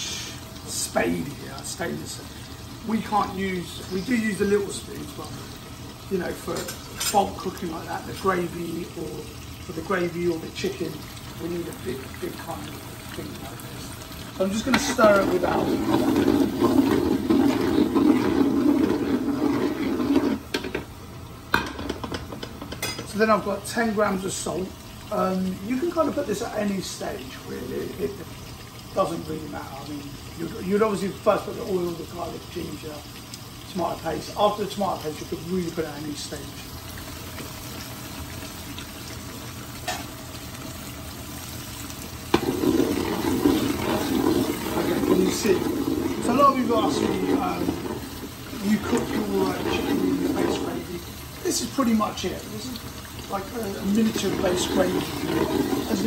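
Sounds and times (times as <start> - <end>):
frying: 0.0 - 56.0
oil and spices sizzling: 0.0 - 56.0
spade stirring wet curry: 14.5 - 20.5, 42.3 - 50.8, 54.1 - 56.0.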